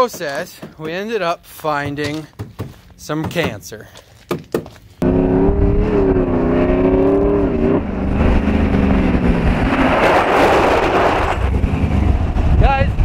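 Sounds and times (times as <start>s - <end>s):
tyres on gravel: 0.0s - 5.0s
engine drone: 5.0s - 13.0s.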